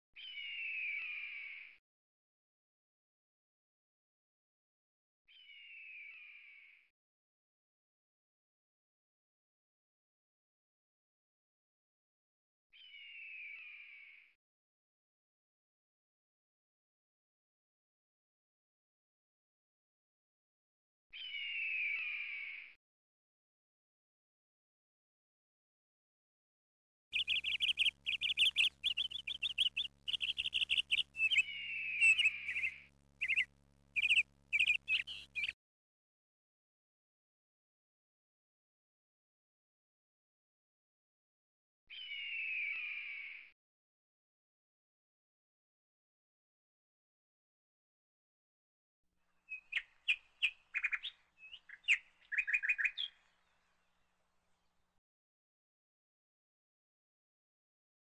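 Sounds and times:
bird calling: 27.2 - 35.6, 49.5 - 53.3.

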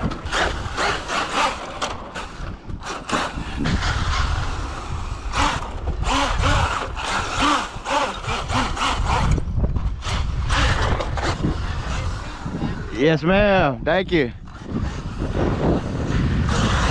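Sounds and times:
electric motor whining: 0.0 - 12.9.

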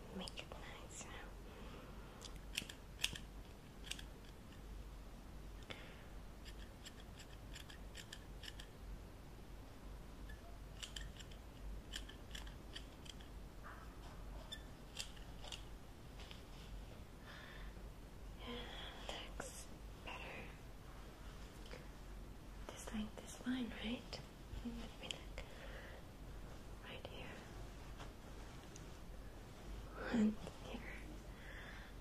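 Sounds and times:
scissors snipping hair: 2.2 - 4.4, 6.4 - 8.7, 10.8 - 13.3, 14.9 - 15.6.

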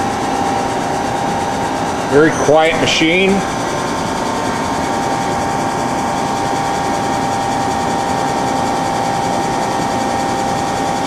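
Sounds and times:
lathe mechanical hum: 0.0 - 11.0
high whine: 1.9 - 7.2.

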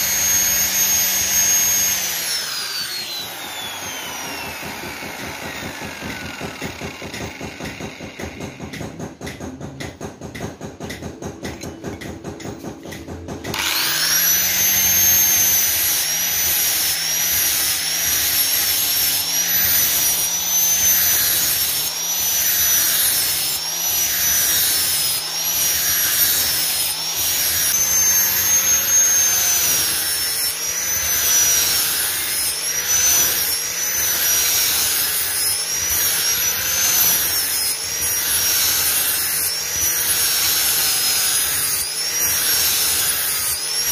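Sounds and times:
angle grinder sanding metal: 0.0 - 8.8, 13.5 - 43.9.

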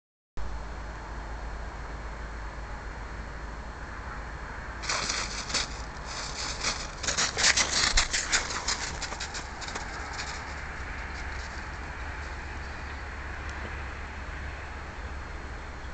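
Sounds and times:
steady low rumble: 0.4 - 15.9
footsteps crunching in snow: 4.8 - 13.0.

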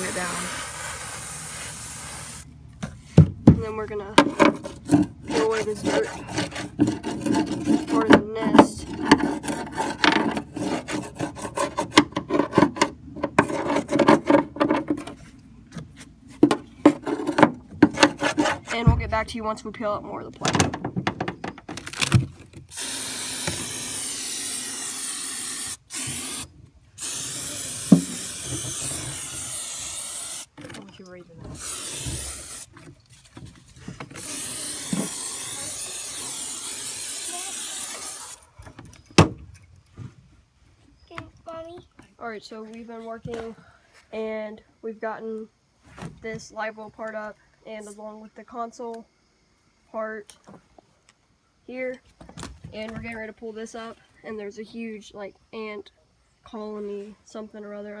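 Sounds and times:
aerosol can spraying hiss: 0.0 - 2.5, 22.7 - 30.5, 31.6 - 32.7, 34.2 - 38.4
rasping scraping of wood: 4.6 - 8.2, 8.8 - 12.6, 13.3 - 14.5, 16.9 - 18.8.

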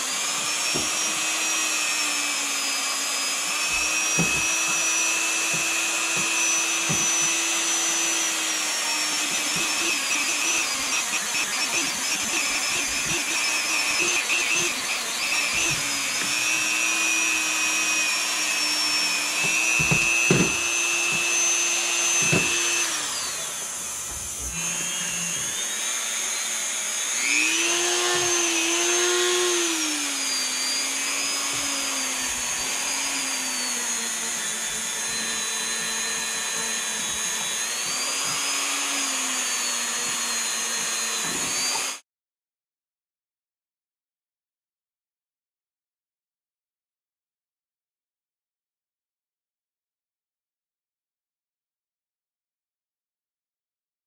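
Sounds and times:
rotary tool motor whine: 0.0 - 42.0
knocks: 3.7 - 7.4, 19.4 - 21.4, 22.1 - 22.7.

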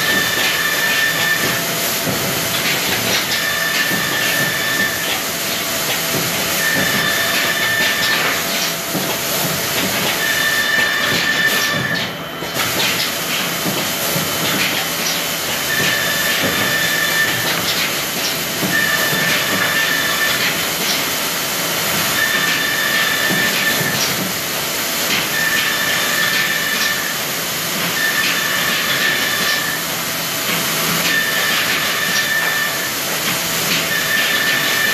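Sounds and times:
woodworking machinery hissing: 0.0 - 12.0, 15.4 - 30.0
high machine whine: 0.0 - 30.2.

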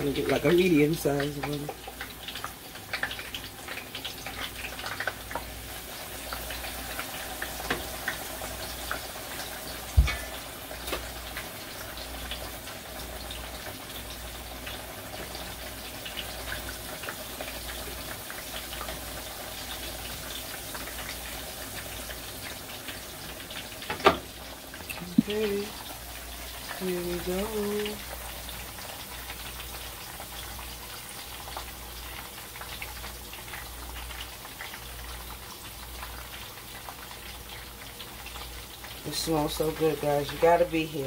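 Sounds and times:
fish sizzling in hot oil: 0.0 - 41.0.

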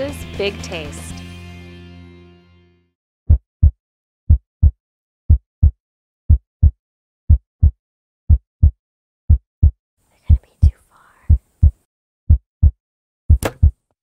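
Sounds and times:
background music: 0.0 - 2.8
heartbeat double thump: 3.3 - 9.8, 11.3 - 13.8.

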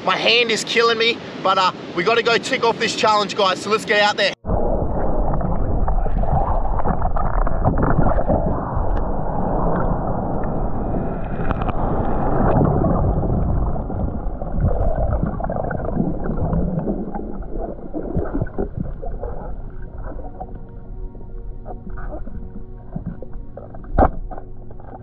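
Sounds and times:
underwater water rushing and gurgling: 4.4 - 25.0
small clicks and bubbles: 5.3 - 10.6, 11.2 - 20.8, 21.6 - 25.0.

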